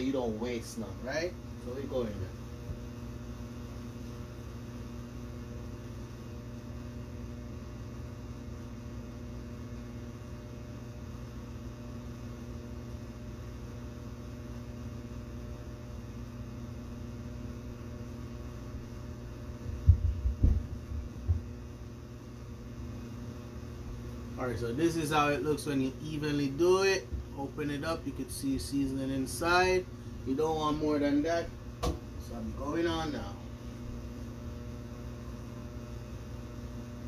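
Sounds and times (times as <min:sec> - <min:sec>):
low electrical hum: 0:00.0 - 0:37.0
dull low thumps: 0:19.6 - 0:21.6.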